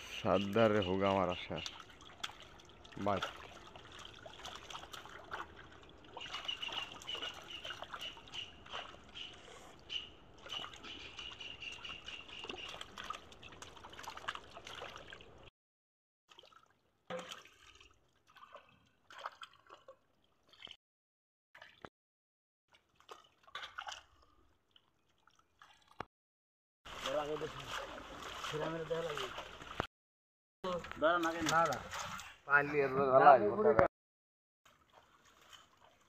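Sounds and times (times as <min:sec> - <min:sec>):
water sloshes and drips: 0:00.3 - 0:15.5, 0:16.3 - 0:20.8, 0:21.6 - 0:21.9, 0:22.7 - 0:26.1, 0:26.9 - 0:29.9, 0:30.7 - 0:32.5, 0:34.7 - 0:36.0
fish splashing in water: 0:01.3 - 0:15.5, 0:16.3 - 0:20.8, 0:22.7 - 0:26.0, 0:26.9 - 0:29.9, 0:34.7 - 0:36.0.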